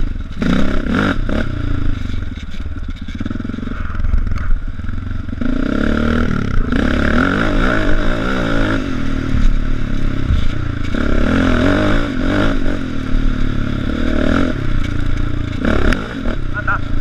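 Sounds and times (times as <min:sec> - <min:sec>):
quad bike engine revving: 0:00.0 - 0:17.0.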